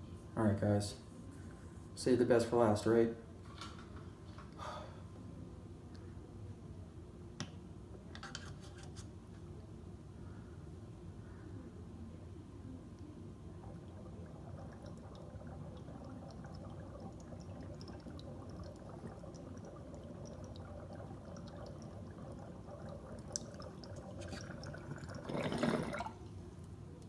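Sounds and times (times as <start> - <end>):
water bubbling and gurgling: 13.3 - 26.2.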